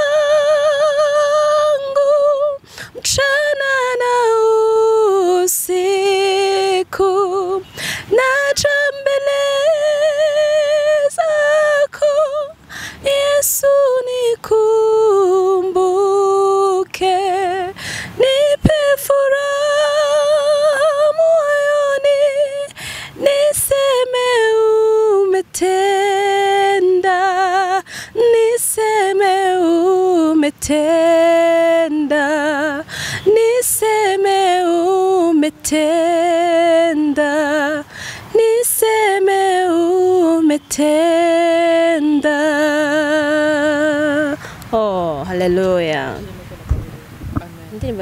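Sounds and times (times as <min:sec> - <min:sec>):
women singing unaccompanied: 0:00.0 - 0:46.2.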